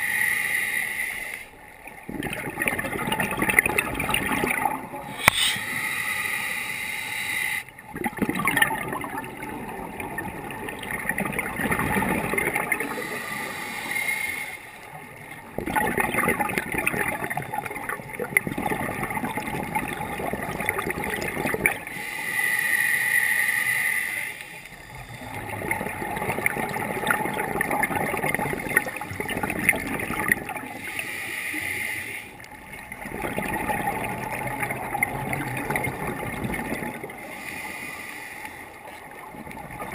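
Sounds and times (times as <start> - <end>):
hissing inhale through regulator: 0.0 - 1.6, 5.1 - 7.7, 12.8 - 14.8, 21.8 - 25.5, 30.6 - 32.5, 37.2 - 38.8
gurgling exhaled bubbles: 2.0 - 5.6, 7.8 - 13.2, 15.4 - 21.9, 24.9 - 30.8, 32.8 - 37.3.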